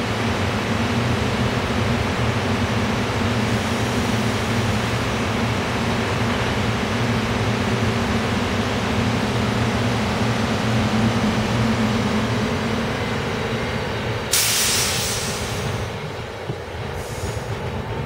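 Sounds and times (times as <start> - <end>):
train wheels rumbling on rail: 0.0 - 18.0
rush of hiss: 14.3 - 15.9, 17.0 - 17.6.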